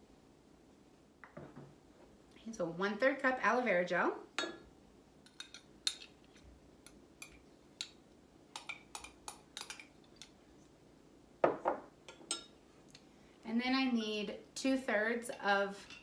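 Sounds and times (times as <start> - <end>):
knock: 11.4 - 11.9.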